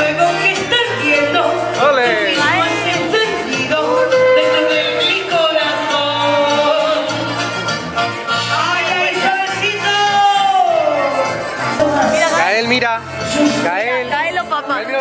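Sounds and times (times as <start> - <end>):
person singing long notes: 0.0 - 7.4.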